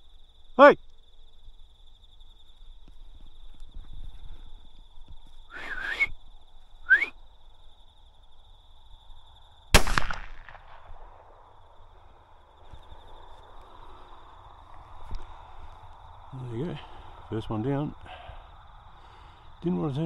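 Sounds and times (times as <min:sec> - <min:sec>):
crickets trilling: 0:00.0 - 0:20.0
rifle shot with echo: 0:09.7 - 0:11.6.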